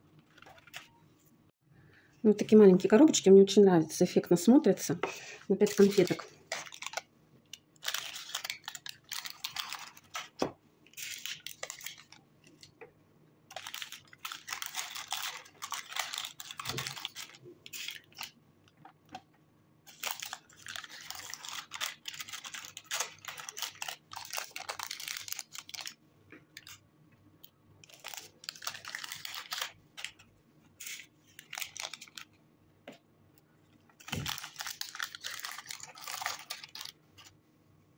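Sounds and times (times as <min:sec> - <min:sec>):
paper and cardboard crinkling: 0:00.2 - 0:01.0, 0:05.6 - 0:07.0, 0:07.8 - 0:12.7, 0:13.5 - 0:18.4, 0:19.9 - 0:26.0, 0:27.8 - 0:30.2, 0:30.8 - 0:32.4, 0:34.0 - 0:37.4.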